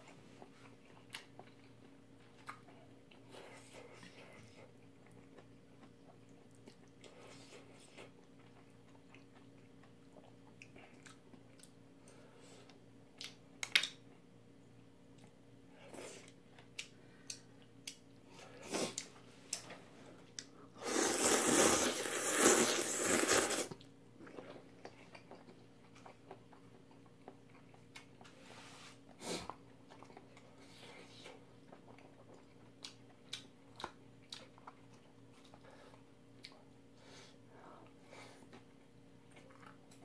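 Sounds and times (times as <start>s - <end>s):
chewing: 0.2s - 13.9s, 15.1s - 28.4s, 29.1s - 36.8s, 37.8s - 40.0s
loud noodle slurp: 20.8s - 23.8s.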